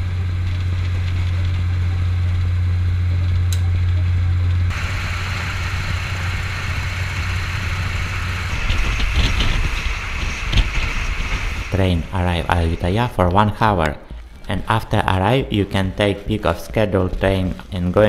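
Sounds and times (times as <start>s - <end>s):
low drone inside train carriage: 0.0s - 14.4s
rushing wind through open window: 4.6s - 18.0s.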